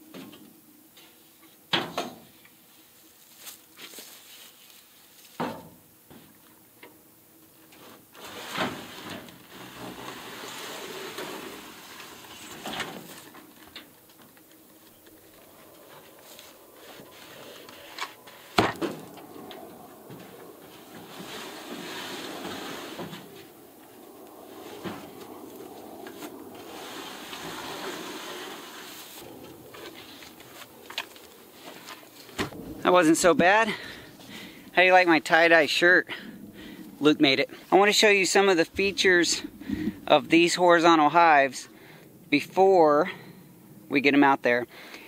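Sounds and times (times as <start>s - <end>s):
wooden box scraping: 7.9s - 13.4s, 20.2s - 23.6s, 26.1s - 33.6s.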